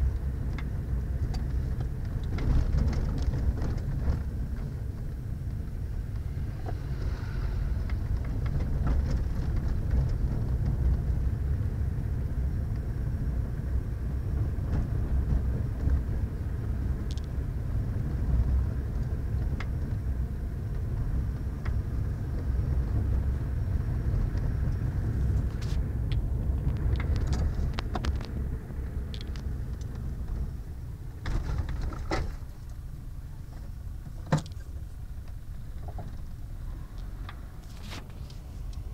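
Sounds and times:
car engine and road noise: 0.0 - 38.9
small clicks and knocks: 17.1 - 17.3, 25.4 - 28.4, 29.1 - 30.4.

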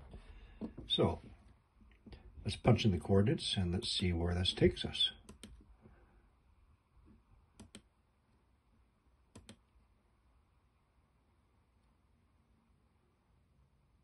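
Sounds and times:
faint computer mouse clicks: 7.6 - 7.9, 9.3 - 9.6.

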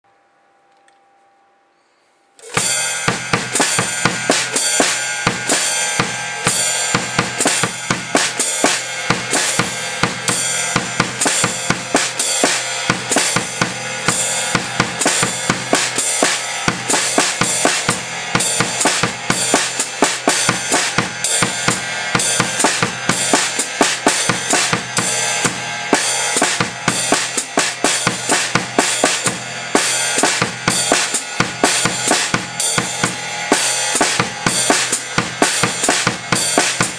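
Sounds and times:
ride cymbal pulse: 1.8 - 36.9
foot-closed hi-hat: 2.4 - 36.9
snare and bass drum: 2.4 - 36.9.

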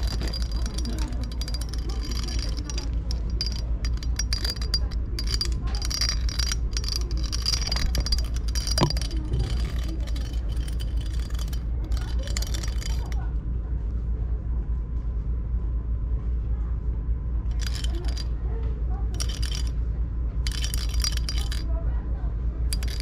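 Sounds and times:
cat toy rattling and clicking: 0.0 - 13.2, 17.5 - 18.3, 19.2 - 19.7, 20.5 - 21.7, 22.7 - 23.0
steady low rumble: 0.0 - 23.0.

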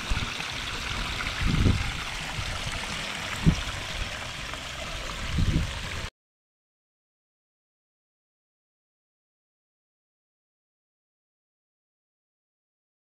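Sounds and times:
waterfall splashing over rocks: 0.0 - 6.1.

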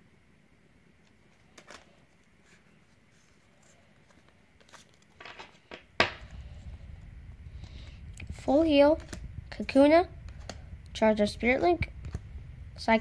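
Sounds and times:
card rustle: 1.0 - 6.6, 8.9 - 9.2.

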